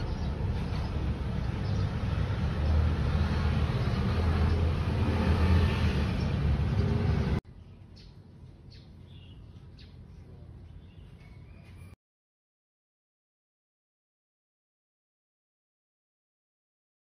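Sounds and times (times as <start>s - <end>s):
vehicle passing: 0.0s - 7.4s
road traffic rumble: 0.0s - 11.9s.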